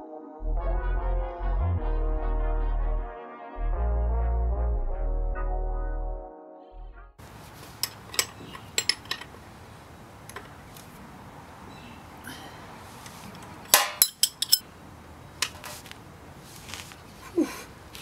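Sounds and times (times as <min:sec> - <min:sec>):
wrench clicking on metal bolt: 0:07.8 - 0:09.4, 0:13.7 - 0:14.6.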